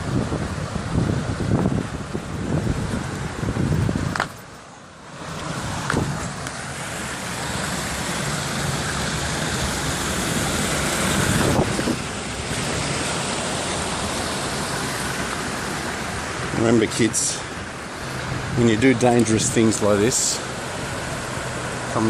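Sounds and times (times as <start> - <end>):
wind on microphone: 0.0 - 4.4, 10.2 - 13.0
creek water rushing into pool: 4.9 - 22.0.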